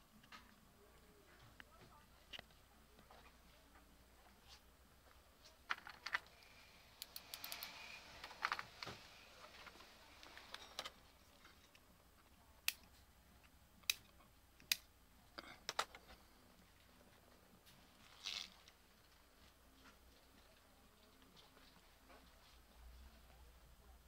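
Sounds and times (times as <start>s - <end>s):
plastic parts clicking and rattling: 5.6s - 9.0s, 15.6s - 16.2s.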